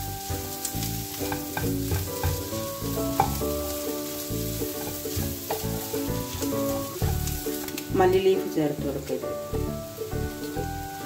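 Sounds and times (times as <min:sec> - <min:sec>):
food sizzling in oil: 0:00.0 - 0:11.0
spatula scraping frying pan: 0:00.4 - 0:07.8.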